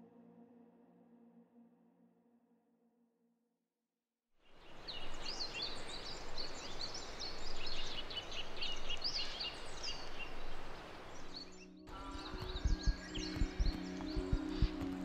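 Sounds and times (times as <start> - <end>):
small birds chirping: 4.5 - 15.0
rushing outdoor background noise: 4.6 - 15.0.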